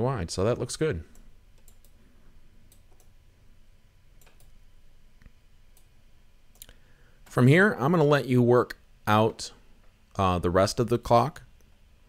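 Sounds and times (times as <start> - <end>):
low steady hum: 0.0 - 12.0
computer mouse clicks: 1.1 - 2.0, 2.7 - 3.1, 4.2 - 4.6.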